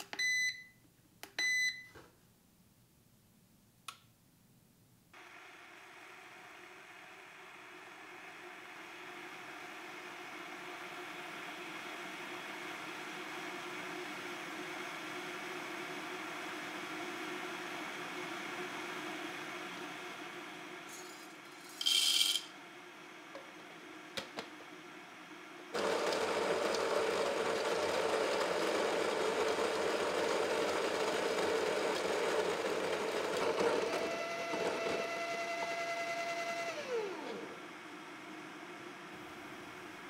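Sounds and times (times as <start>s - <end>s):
coffee grinder grinding beans: 20.9s - 22.5s, 25.8s - 37.8s.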